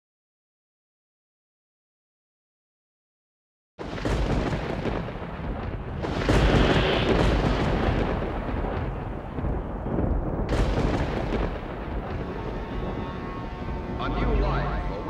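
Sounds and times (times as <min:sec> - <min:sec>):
deep rumble: 0:04.1 - 0:15.0.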